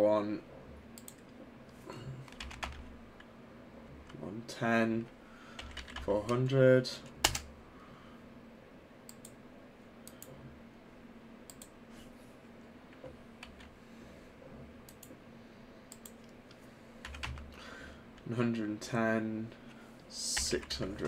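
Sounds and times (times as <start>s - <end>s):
faint steady hum: 0.0s - 21.0s
computer mouse clicks: 1.0s - 1.4s, 9.1s - 9.4s, 10.0s - 10.4s, 11.5s - 11.8s, 14.9s - 15.2s, 15.9s - 17.4s.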